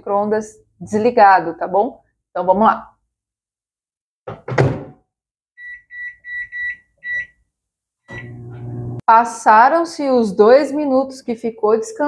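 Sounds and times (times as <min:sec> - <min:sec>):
short high keypad beeps: 0:05.6 - 0:07.4
microwave oven humming: 0:08.1 - 0:09.0.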